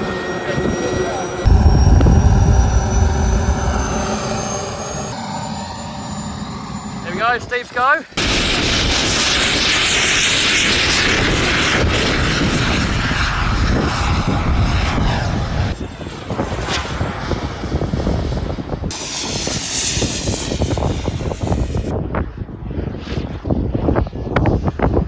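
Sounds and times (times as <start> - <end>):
jet turbine roaring: 0.1 - 7.6, 8.2 - 15.8
high whine: 1.3 - 7.4.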